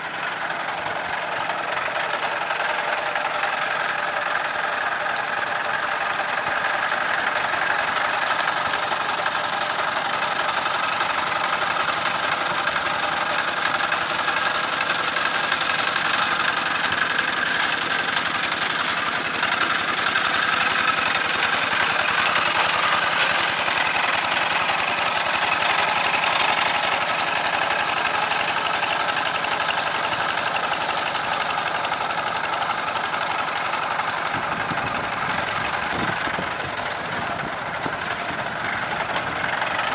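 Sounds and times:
diesel engine running under load: 0:00.0 - 0:39.9.

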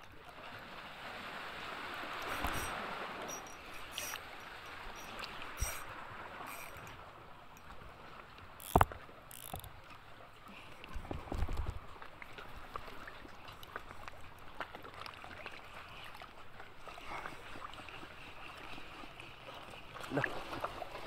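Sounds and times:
water lapping around a boat: 0:00.0 - 0:21.0
fishing rod clicks and knocks: 0:02.2 - 0:07.8, 0:08.4 - 0:10.0.

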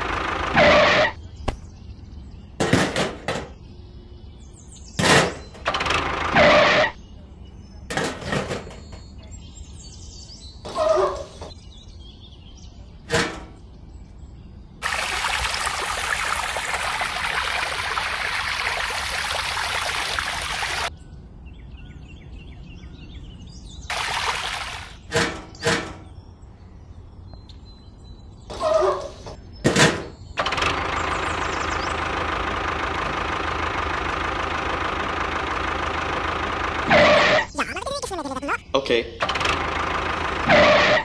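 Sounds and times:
water gushing into plastic tank: 0:14.8 - 0:20.9, 0:23.9 - 0:25.1.

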